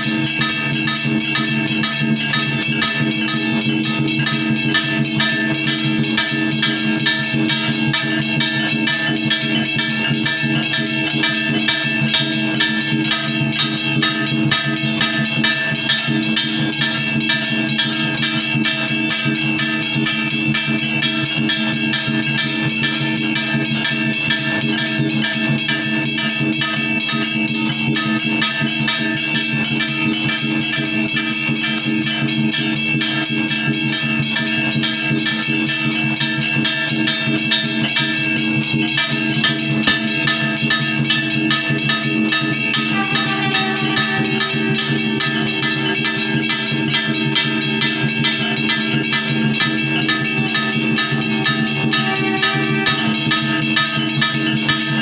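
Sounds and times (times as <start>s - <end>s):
bell ringing: 0.0s - 55.0s
rapid drum strikes: 37.7s - 55.0s.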